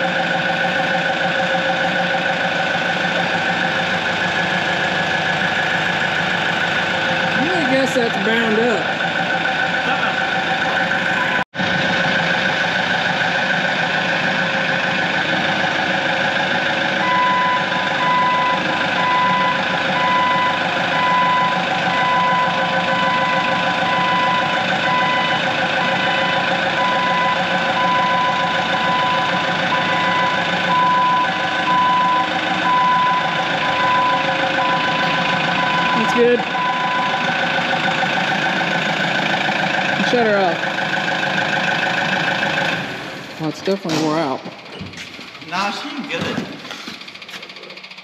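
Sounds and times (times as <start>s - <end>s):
diesel engine running: 0.0s - 48.0s
backup alarm beeping: 9.9s - 11.4s, 17.0s - 37.4s.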